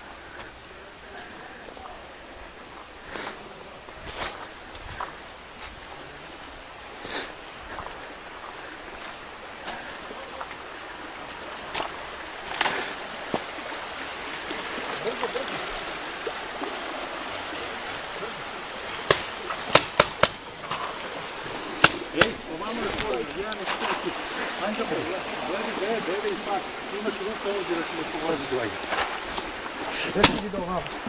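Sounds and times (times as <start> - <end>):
stream water rushing: 0.0 - 31.0
footsteps snapping twigs: 18.8 - 21.0, 21.8 - 24.3, 28.8 - 31.0.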